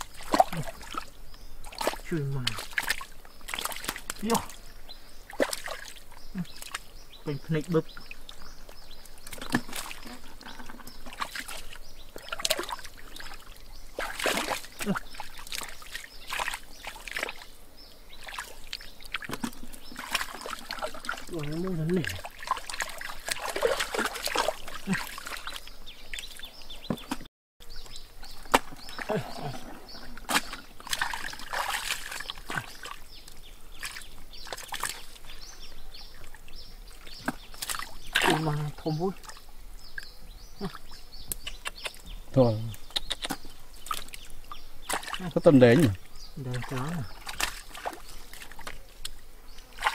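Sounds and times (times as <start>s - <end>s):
hands splashing in muddy water: 0.0s - 4.6s, 5.3s - 6.9s, 9.2s - 10.2s, 11.0s - 17.5s, 18.2s - 27.2s, 28.2s - 35.3s, 37.0s - 39.4s, 42.8s - 49.9s.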